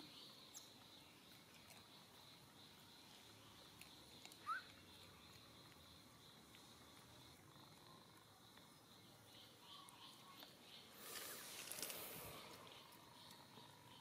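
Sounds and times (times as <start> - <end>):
high insect drone: 5.2 - 14.0.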